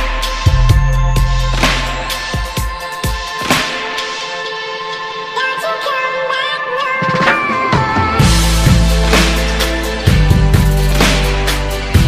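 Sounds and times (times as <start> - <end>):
steady drum beat: 0.0 - 4.2, 8.0 - 12.0
held bass notes: 8.2 - 12.0.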